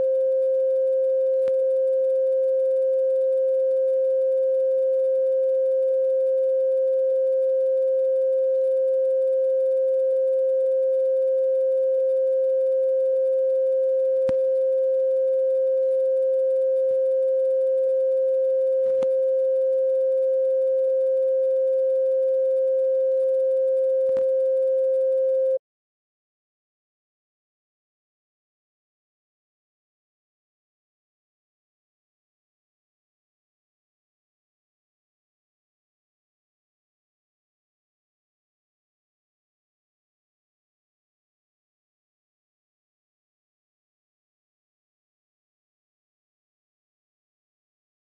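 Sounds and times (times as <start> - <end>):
steady pure tone: 0.0 - 25.6
faint clicks: 14.0 - 25.2.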